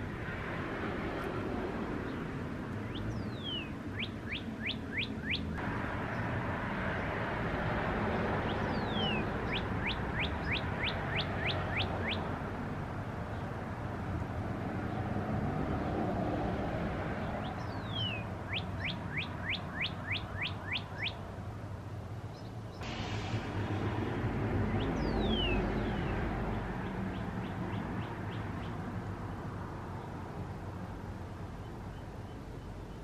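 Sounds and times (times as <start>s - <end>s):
songbird singing: 1.2s - 33.0s.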